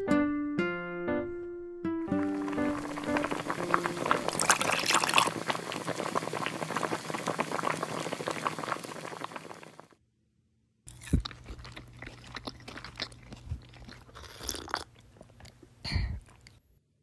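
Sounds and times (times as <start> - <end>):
stew bubbling: 2.1 - 9.9, 11.1 - 16.6.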